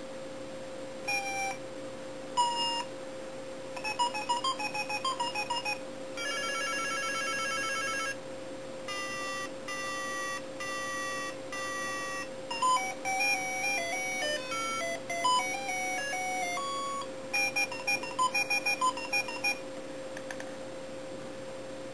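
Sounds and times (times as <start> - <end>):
steady hum: 0.0 - 21.9
toy electronic beeps and tunes: 1.1 - 1.6, 2.4 - 2.9, 3.8 - 8.2, 8.9 - 19.6.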